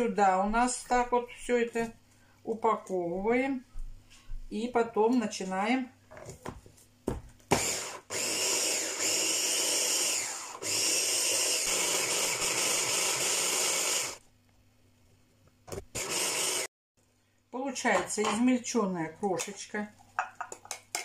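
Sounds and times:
hand blender chopper running: 0:07.5 - 0:14.2, 0:15.9 - 0:16.7.

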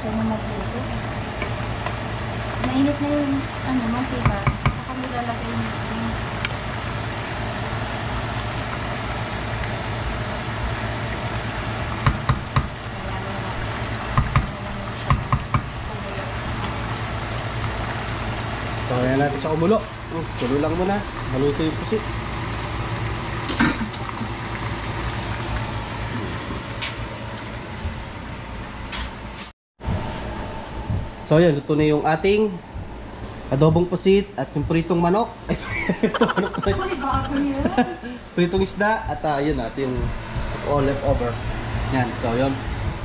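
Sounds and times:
food bubbling in a skillet: 0:00.3 - 0:28.0
low steady hum: 0:29.8 - 0:43.0.

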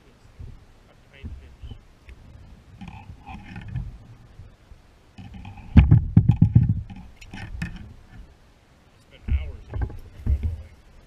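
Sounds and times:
knocks and thuds on plastic kayak: 0:05.2 - 0:08.2, 0:09.2 - 0:10.8.

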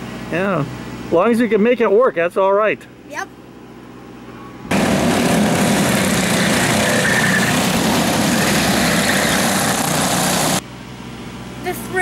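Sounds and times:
go-kart engines droning: 0:04.6 - 0:10.6.

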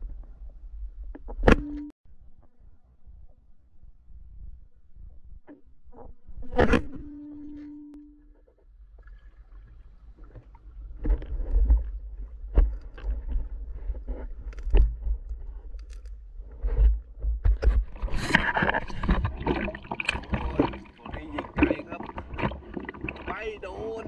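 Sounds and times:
underwater low rumble: 0:00.0 - 0:24.0
underwater clicks and knocks: 0:10.2 - 0:23.6.

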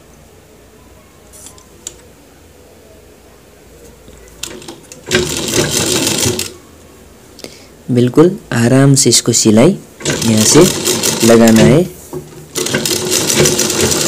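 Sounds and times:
sewing machine running: 0:04.4 - 0:06.6, 0:10.0 - 0:14.0.

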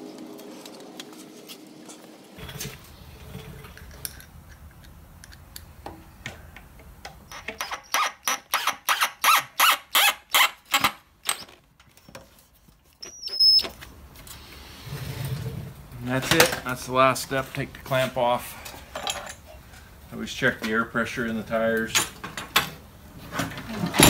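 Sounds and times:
drill driving screw squeaks: 0:07.3 - 0:12.1, 0:13.0 - 0:13.8
short high squeal: 0:13.0 - 0:13.7.

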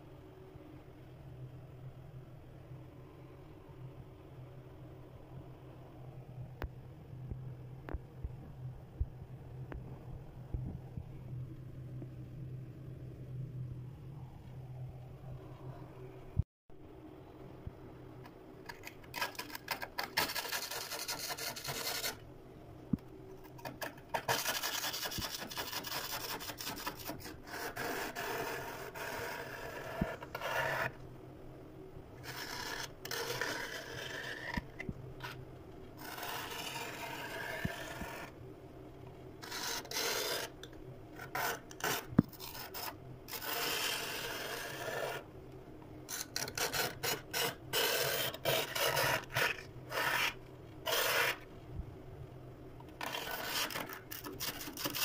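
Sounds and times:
tool scraping freezer frost: 0:18.7 - 0:22.2, 0:23.5 - 0:31.0, 0:32.2 - 0:34.6, 0:39.4 - 0:40.6, 0:41.2 - 0:45.2, 0:46.1 - 0:51.5, 0:53.0 - 0:55.0.

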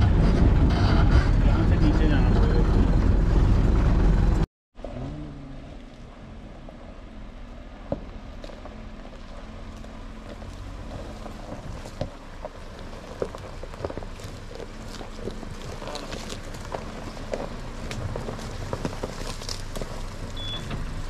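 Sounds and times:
low engine hum: 0:00.0 - 0:21.0
tyres crunching on gravel: 0:05.6 - 0:21.0.

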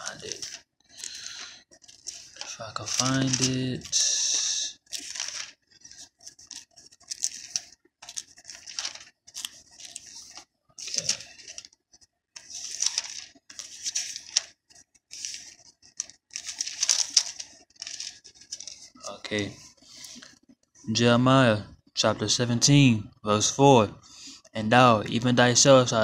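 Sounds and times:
pages rustling as turned: 0:00.0 - 0:20.5.

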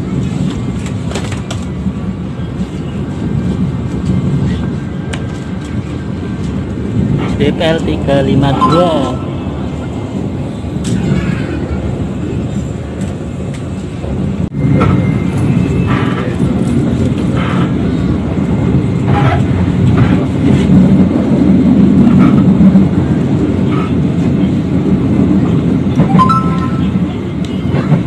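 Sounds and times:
train rumbling inside coach: 0:00.0 - 0:28.0.

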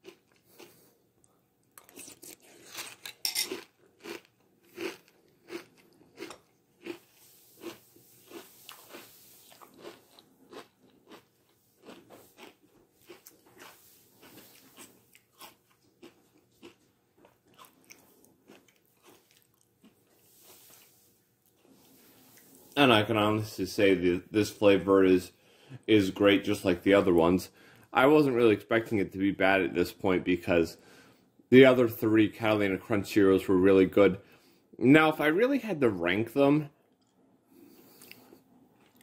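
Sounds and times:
crisp crunching of cereal: 0:01.8 - 0:23.0.

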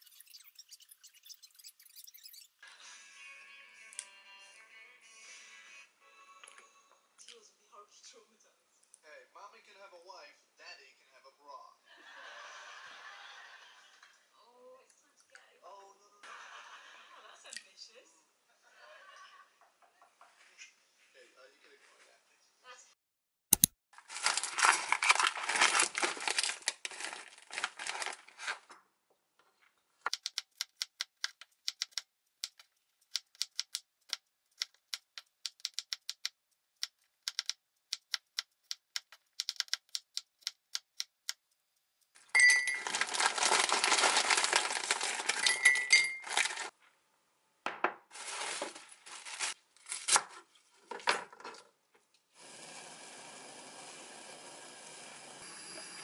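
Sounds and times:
plastic packaging crinkling: 0:24.0 - 0:28.7, 0:42.5 - 0:46.8, 0:48.1 - 0:51.1
rustling and clattering: 0:42.6 - 0:46.8
pot hissing on stove: 0:52.4 - 0:56.0.

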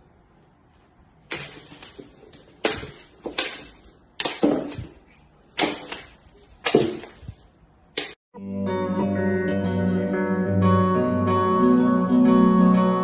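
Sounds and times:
knocks and thumps on wooden floor: 0:01.3 - 0:07.4.

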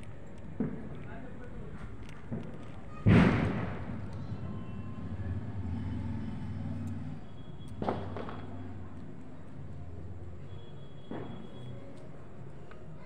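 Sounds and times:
loud bang: 0:02.3 - 0:04.6
vehicle engine running: 0:03.7 - 0:09.3.

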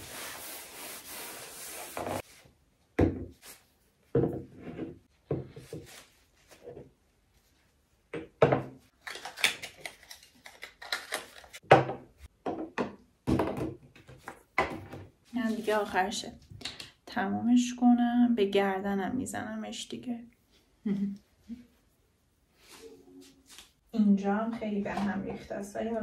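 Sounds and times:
bottles and jars knocking on wood: 0:11.7 - 0:13.9.

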